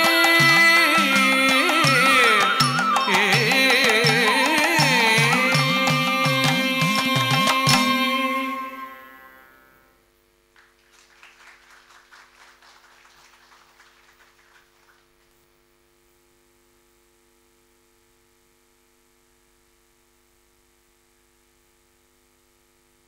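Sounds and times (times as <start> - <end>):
music note: 0.0 - 10.0
audience applauding: 10.6 - 15.3.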